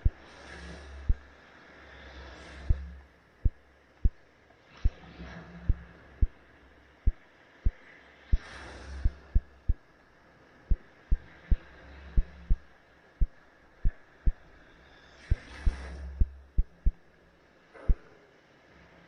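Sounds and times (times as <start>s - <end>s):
faint steady hiss: 0.0s - 19.0s
short sharp low thumps: 12.2s - 12.6s, 16.1s - 17.0s.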